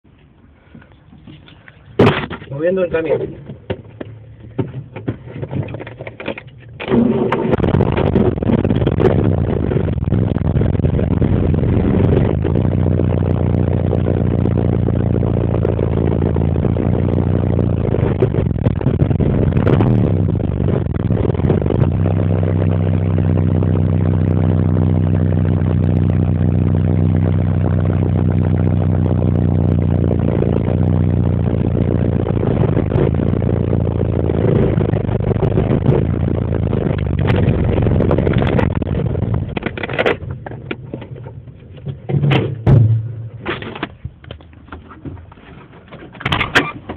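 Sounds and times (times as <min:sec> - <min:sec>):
road noise: 0:00.1 - 0:46.9
vehicle engine hum inside cabin: 0:02.5 - 0:45.4
sharp knocks and clatters: 0:39.5 - 0:46.9.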